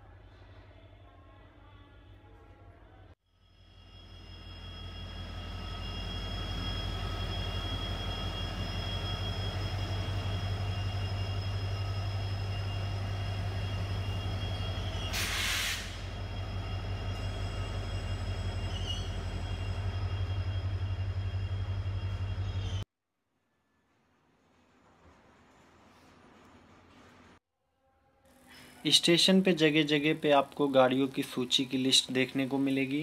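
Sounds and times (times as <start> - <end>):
diesel locomotive engine hum: 3.4 - 22.9
high steady tones: 3.6 - 22.8
sharp hiss of air: 15.1 - 16.1.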